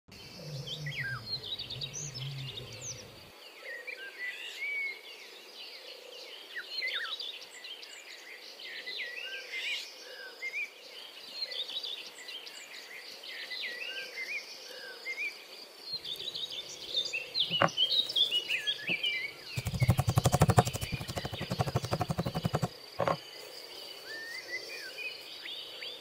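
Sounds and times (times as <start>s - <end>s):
small birds chirping: 0.1s - 3.3s, 15.9s - 23.4s.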